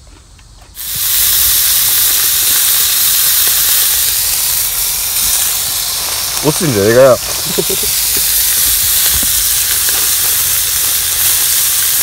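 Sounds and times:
meat sizzling in a skillet: 0.8s - 12.0s.

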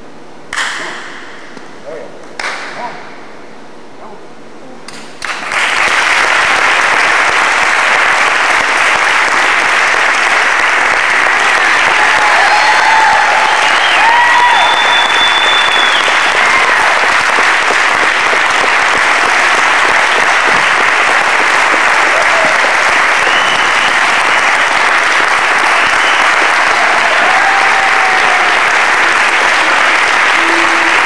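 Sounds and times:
crowd applauding: 5.2s - 31.0s
shouts or whistles: 12.1s - 16.9s, 23.2s - 24.3s, 25.6s - 28.6s.

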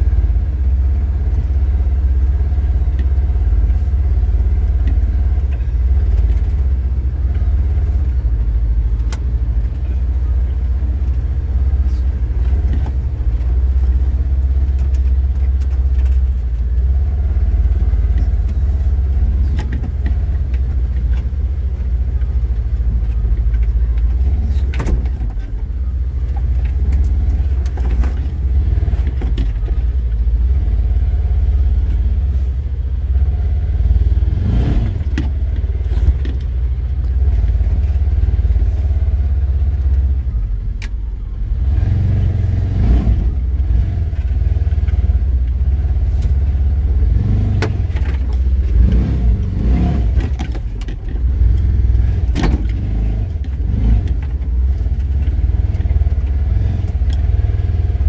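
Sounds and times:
vehicle engine low rumble: 0.0s - 58.0s
vehicle knocks and rattles: 10.9s - 30.7s, 34.7s - 40.3s, 43.4s - 58.0s.

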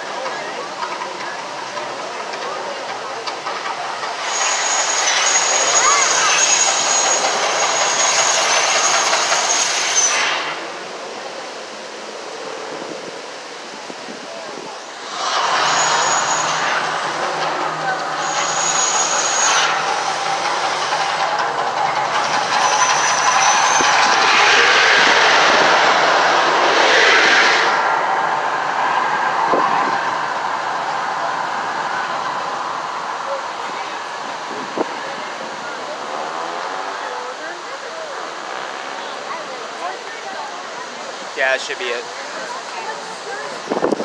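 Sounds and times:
rushing water: 0.0s - 44.0s
loud roar with high whistle: 4.1s - 10.8s, 15.0s - 21.2s, 22.0s - 34.2s.

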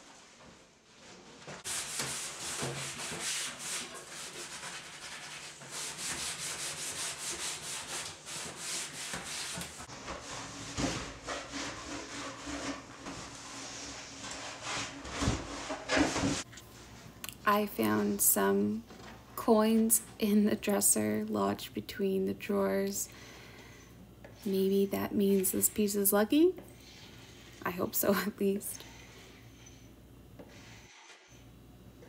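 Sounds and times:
scrubbing wooden surface: 0.1s - 16.4s.

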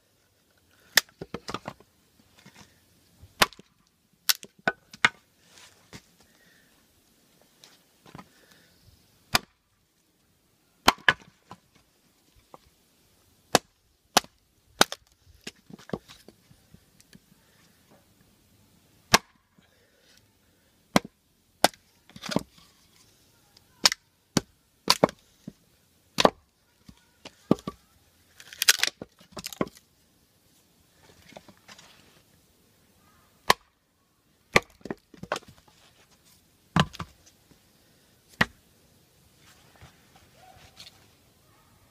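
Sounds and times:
wood splitting: 3.4s - 3.7s, 9.3s - 9.6s, 10.8s - 11.4s, 13.5s - 16.3s, 19.1s - 19.4s, 20.9s - 22.6s, 23.8s - 25.3s, 26.2s - 29.8s, 33.4s - 33.7s, 34.5s - 35.6s, 36.8s - 37.2s, 38.3s - 38.6s.

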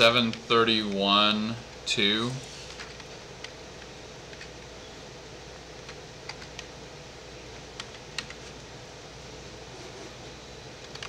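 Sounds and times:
faint background hum: 0.0s - 11.0s.

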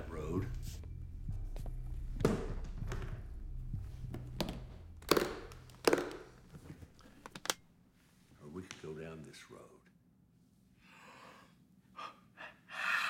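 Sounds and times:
low steady hum: 0.0s - 7.8s
briefcase latches clicking open: 7.0s - 7.6s.

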